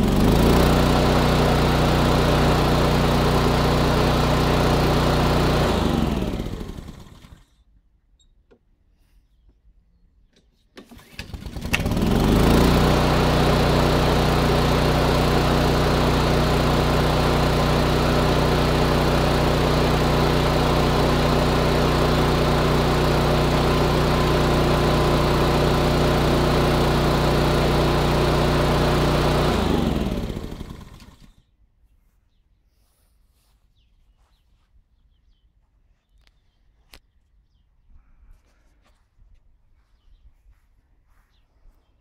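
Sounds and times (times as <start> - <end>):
lawn mower engine running: 0.0 - 7.5, 10.8 - 31.4.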